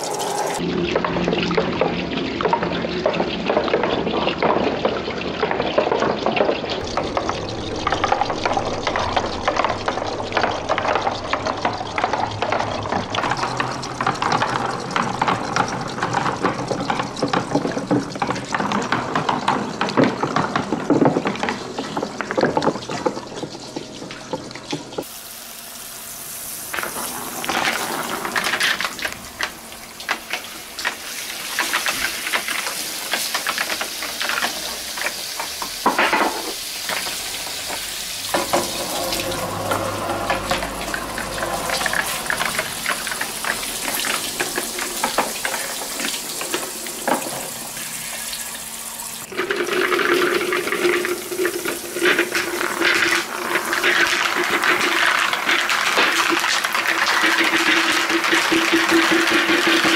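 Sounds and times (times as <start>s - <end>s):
water running down gutters: 0.0s - 59.9s
shower spray hissing on plastic: 25.0s - 59.9s
plastic balls clicking and knocking: 49.3s - 59.9s.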